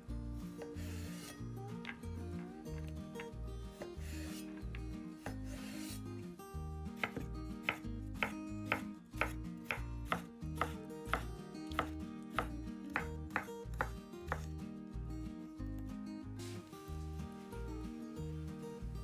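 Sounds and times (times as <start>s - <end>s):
background music: 0.0s - 19.0s
knife scraping strokes: 0.5s - 1.4s, 3.8s - 6.2s
knife chopping on cutting board: 7.0s - 14.5s.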